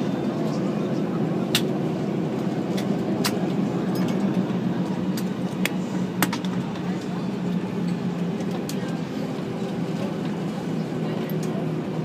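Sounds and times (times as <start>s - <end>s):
airliner cabin engine hum: 0.0s - 12.0s
sharp clicks in cabin: 1.5s - 1.7s.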